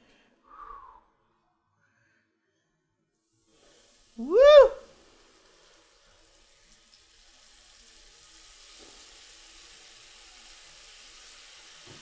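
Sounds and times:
onion strings deep-frying in oil: 3.2 - 12.0.

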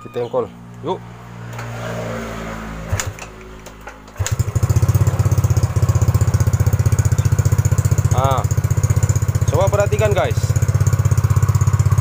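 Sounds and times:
raspy scooter engine idling: 3.6 - 12.0.

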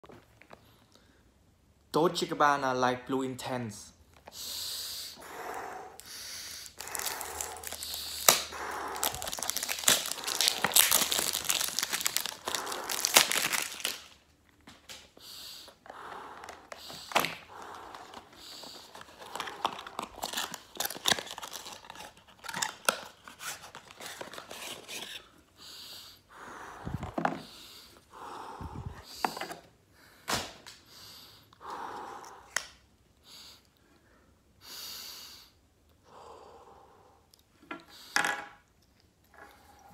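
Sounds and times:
cellophane crinkling and tearing: 6.6 - 15.0, 16.6 - 25.2.

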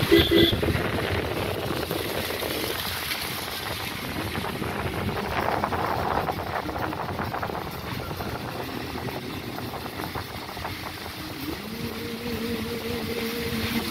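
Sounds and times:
moving vehicle noise: 0.0 - 13.9.

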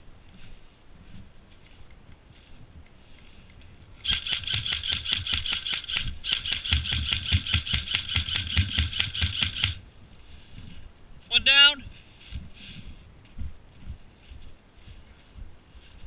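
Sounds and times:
airsoft rifle firing bursts: 4.0 - 9.8.

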